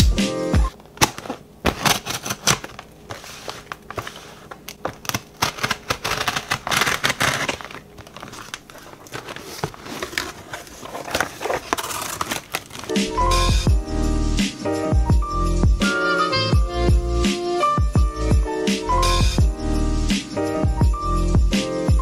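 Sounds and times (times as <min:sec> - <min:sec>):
tape tearing: 0:00.9 - 0:13.1
cardboard scraping and crinkling: 0:01.0 - 0:13.0
utility knife scoring tape: 0:05.1 - 0:07.8.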